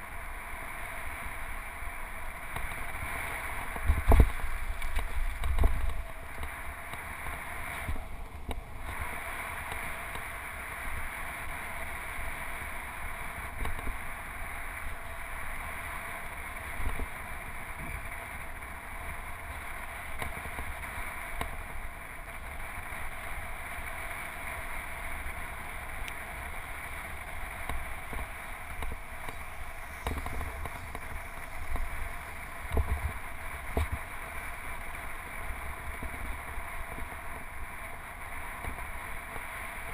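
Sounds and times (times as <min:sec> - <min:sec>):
bicycle tyres rolling on pavement: 0:00.0 - 0:39.9
rushing wind: 0:00.0 - 0:39.9.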